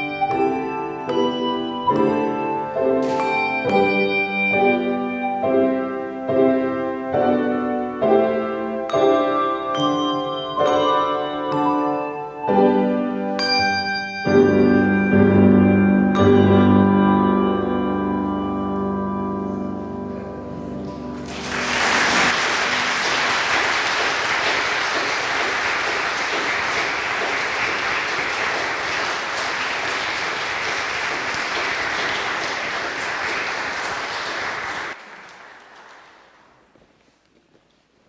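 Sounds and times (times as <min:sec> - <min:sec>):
handbells and piano chord: 0:00.0 - 0:23.1
congregation applauding: 0:21.2 - 0:36.7.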